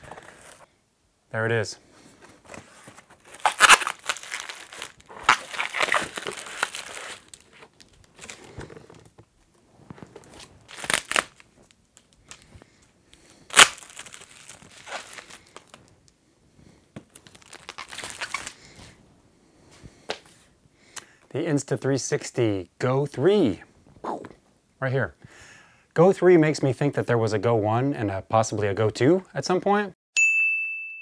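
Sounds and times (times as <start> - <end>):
cardboard box opened: 0.0 - 0.6, 2.2 - 9.2
bubble wrap crinkling: 2.4 - 16.1, 17.0 - 19.0
loud sharp crackle: 13.5 - 15.3.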